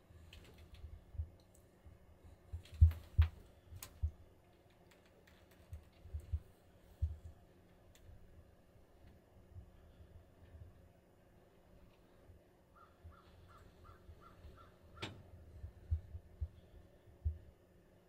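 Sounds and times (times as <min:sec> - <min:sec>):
soft knocks and clicks of gear: 0:14.5 - 0:16.6.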